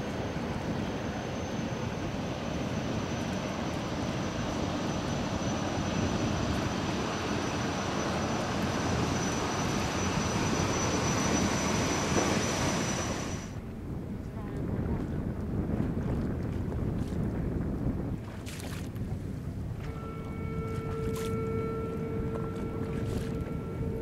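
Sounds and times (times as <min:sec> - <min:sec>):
thin high whine: 0:00.0 - 0:13.6, 0:19.8 - 0:24.0
hydrofoil boat passing: 0:00.0 - 0:24.0.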